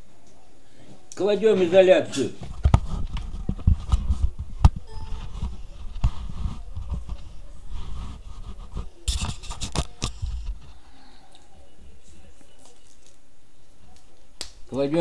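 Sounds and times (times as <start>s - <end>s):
scrapes and rustles: 1.6s - 11.2s.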